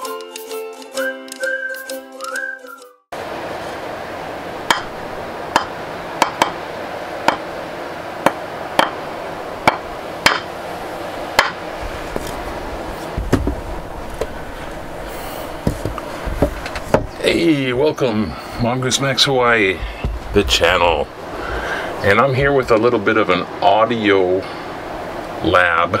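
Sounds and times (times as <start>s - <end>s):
steady hiss: 3.2s - 26.0s
dull low thumps: 11.8s - 22.8s.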